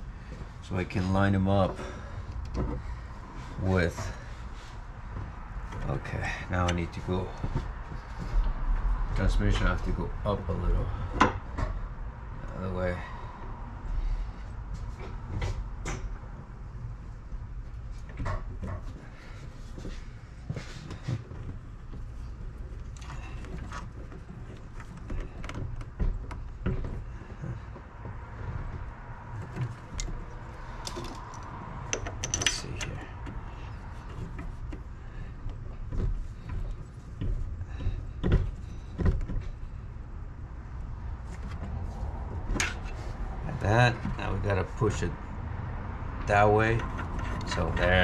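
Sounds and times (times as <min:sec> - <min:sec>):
metallic clicks and knocks: 0:22.6 - 0:34.8.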